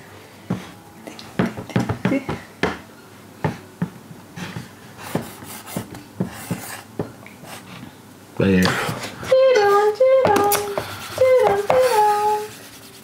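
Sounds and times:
boards knocking and tapping: 1.4 - 2.8.

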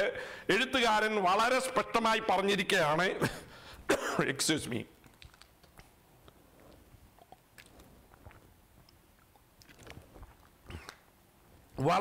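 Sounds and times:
man sipping and swallowing: 5.1 - 11.8.

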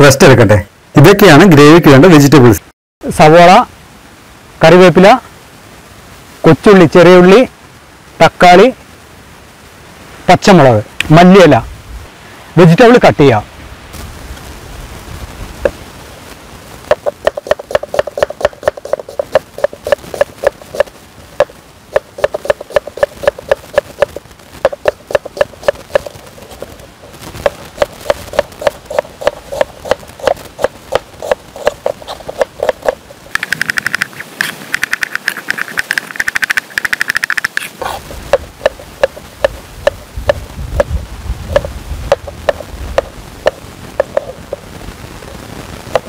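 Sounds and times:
knife chopping on cutting board: 28.1 - 33.0.

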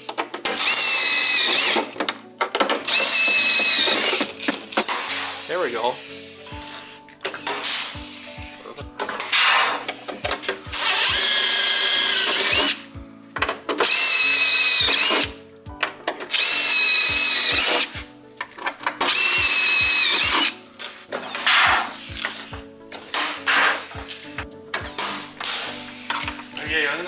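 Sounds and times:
drill boring through metal: 0.4 - 2.0, 2.8 - 8.2, 9.0 - 15.4, 16.1 - 18.0, 18.6 - 24.2
background music with beat: 2.9 - 27.0.

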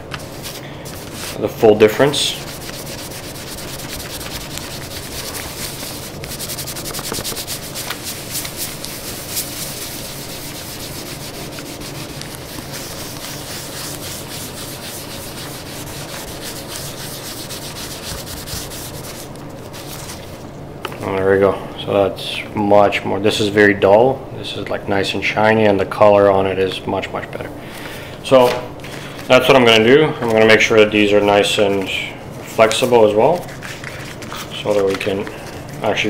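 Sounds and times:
cloth rubbing on leather: 0.2 - 20.4.

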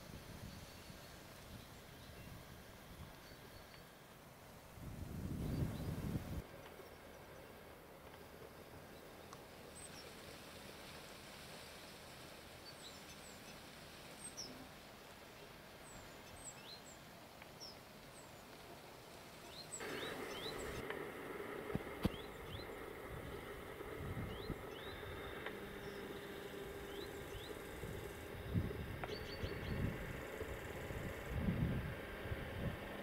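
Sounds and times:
steady hum with held tones: 0.0 - 33.0
birds chirping faintly: 10.9 - 20.8, 21.8 - 33.0.

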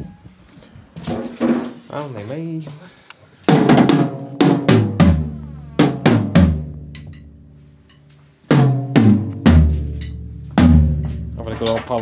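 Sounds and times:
acoustic drum kit hits: 3.5 - 7.3, 8.5 - 12.0.

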